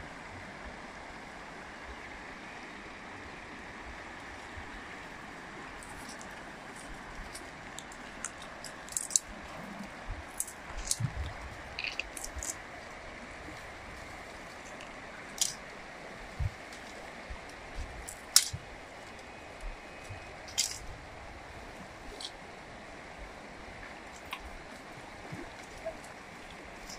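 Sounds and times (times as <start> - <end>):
river rushing: 0.0 - 26.9
plant stems snapping: 7.4 - 9.3, 10.4 - 11.1, 11.8 - 12.6, 15.4 - 15.6, 18.1 - 18.6, 20.5 - 20.8.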